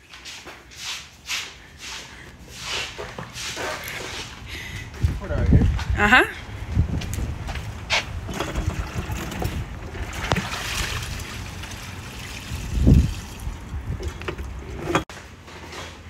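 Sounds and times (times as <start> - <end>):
wind rumbling on microphone: 4.4 - 15.0
water splashing onto grass: 10.0 - 13.7.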